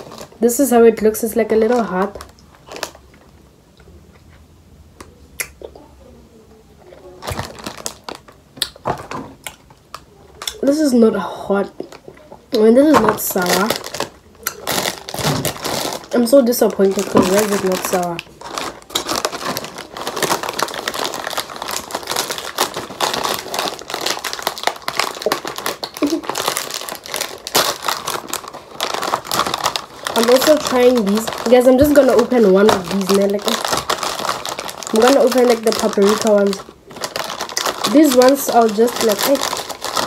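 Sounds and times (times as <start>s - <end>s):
plastic snack packet crinkling: 0.0s - 0.6s, 1.2s - 3.2s, 6.9s - 40.0s
person chewing gummies: 7.2s - 10.6s, 17.0s - 40.0s.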